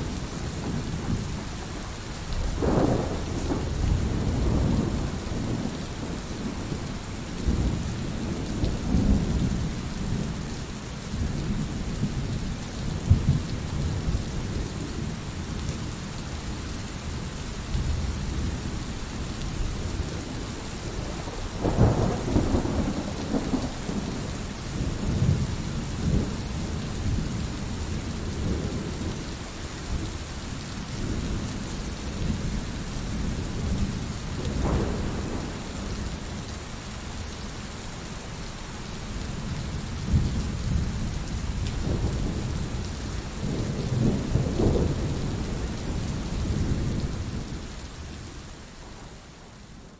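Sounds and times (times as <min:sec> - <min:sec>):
steady rain: 0:00.0 - 0:49.9
thunder rumbling: 0:02.4 - 0:10.4, 0:20.0 - 0:29.2, 0:31.0 - 0:36.4, 0:40.0 - 0:48.1.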